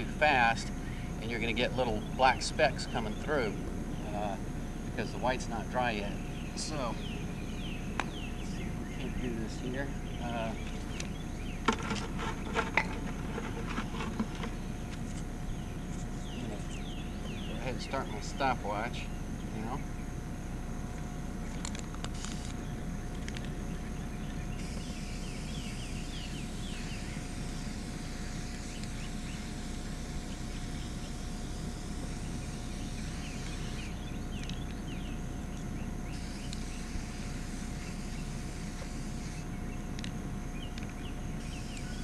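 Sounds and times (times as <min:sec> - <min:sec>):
aerosol paint spraying: 0:24.6 - 0:34.0, 0:36.1 - 0:39.4.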